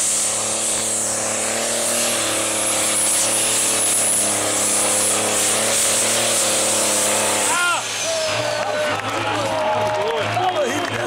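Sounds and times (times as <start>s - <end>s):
tractor diesel engine droning: 0.0s - 11.0s.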